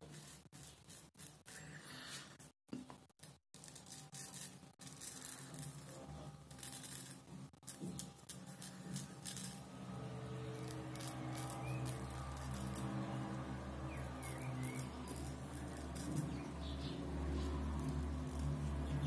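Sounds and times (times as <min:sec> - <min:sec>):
razor scraping stubble: 0:03.5 - 0:19.0.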